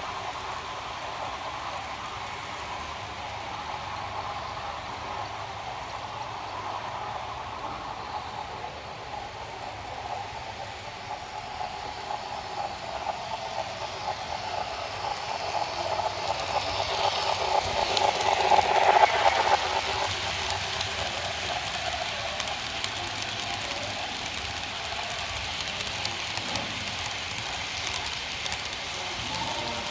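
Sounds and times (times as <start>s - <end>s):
model train rolling on track: 0.0s - 29.9s
fine rapid ticking of wheels: 10.0s - 29.9s.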